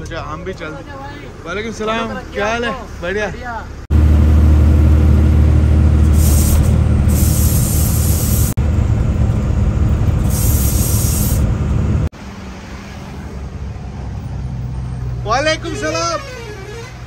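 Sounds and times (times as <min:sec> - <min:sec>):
truck diesel engines droning: 0:00.0 - 0:17.0
short air brake hisses: 0:06.1 - 0:08.6, 0:10.2 - 0:11.5.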